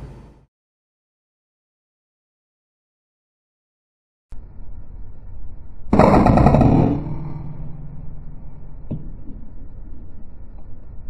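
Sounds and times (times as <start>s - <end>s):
steady background noise: 4.3s - 11.0s
air rifle shot: 5.9s - 8.0s.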